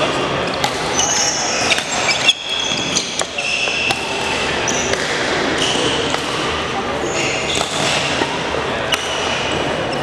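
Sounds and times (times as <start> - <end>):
rackets hitting shuttlecock: 0.0 - 9.9
shoes squeaking on gym floor: 0.9 - 5.0, 7.0 - 8.2.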